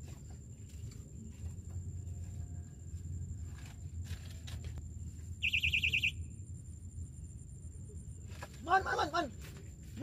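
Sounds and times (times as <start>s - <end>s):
bite alarm high beeps: 5.4s - 6.3s.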